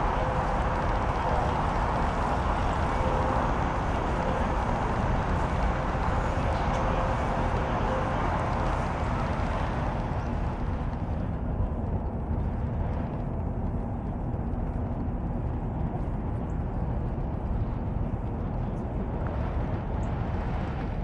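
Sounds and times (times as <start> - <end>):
faint indistinct voices: 0.0 - 12.5
low outdoor background noise: 0.0 - 21.0.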